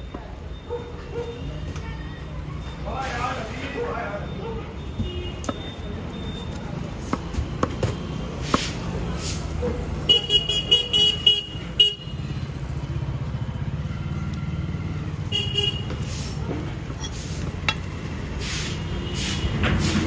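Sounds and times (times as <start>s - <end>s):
engines rumbling: 0.0s - 20.0s
vehicle horn beeps: 4.8s - 5.9s, 15.3s - 16.0s.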